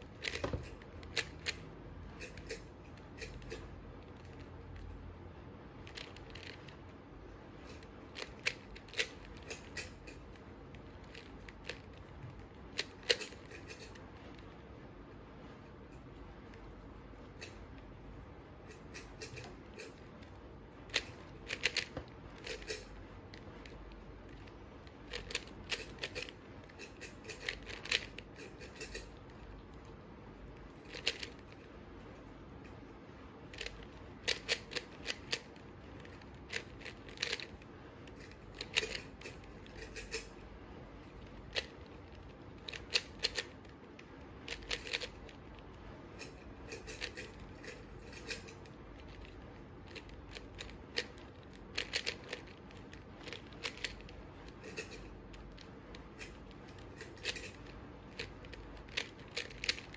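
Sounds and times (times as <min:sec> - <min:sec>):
puzzle cube plastic clicks: 0:30.8 - 0:31.6, 0:49.0 - 0:54.1.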